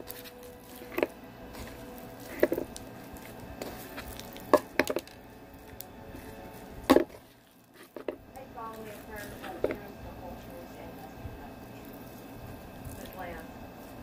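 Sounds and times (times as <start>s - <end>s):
slime squelching and popping: 0.0s - 8.2s.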